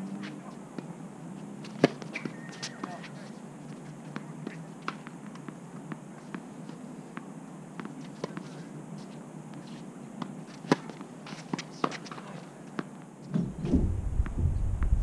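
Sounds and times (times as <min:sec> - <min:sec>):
tennis ball bouncing on court: 0:01.6 - 0:03.2, 0:04.0 - 0:06.5, 0:07.1 - 0:08.6, 0:09.5 - 0:13.5.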